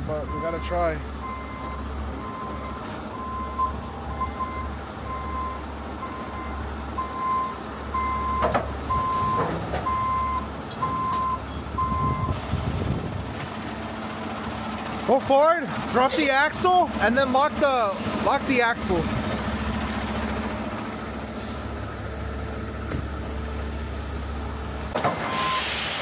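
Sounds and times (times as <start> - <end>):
truck reverse alarm beeping: 0.0 - 12.6, 24.9 - 26.0
diesel engine running low: 0.0 - 26.0.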